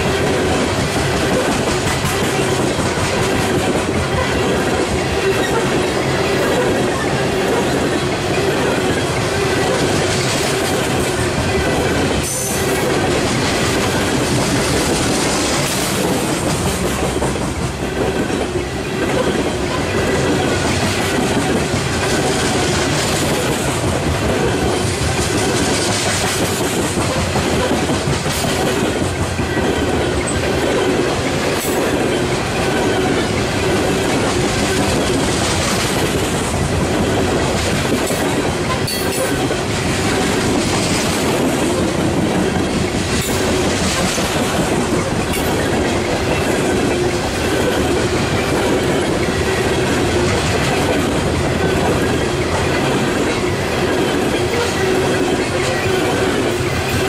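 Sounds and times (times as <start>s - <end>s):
train wheels rumbling on rails: 0.0s - 57.0s
wheels clacking over rail joints: 0.0s - 57.0s.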